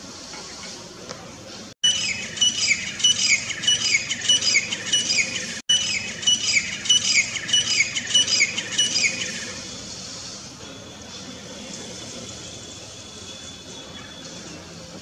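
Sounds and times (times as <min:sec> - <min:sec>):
francolin calling: 0:01.8 - 0:09.6.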